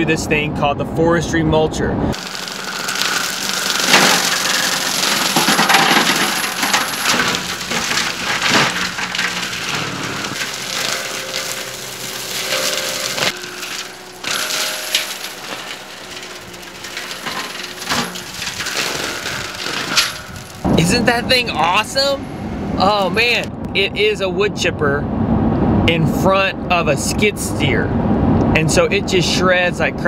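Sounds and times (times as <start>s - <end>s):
mulcher machine noise: 2.1s - 23.8s
wood cracking and splintering: 2.2s - 22.1s.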